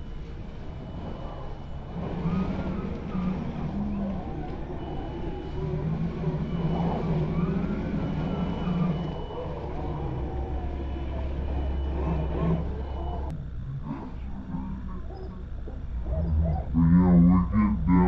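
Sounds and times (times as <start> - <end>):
electric motor whining: 0.0 - 13.6
steady low hum: 0.0 - 18.0.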